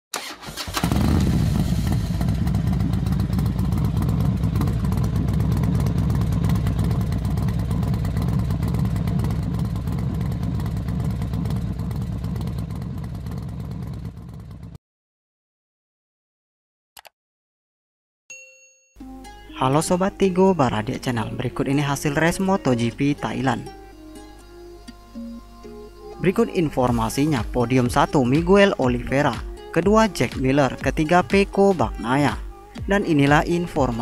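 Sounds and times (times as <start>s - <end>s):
racing motorcycle engines revving: 0.7s - 14.7s.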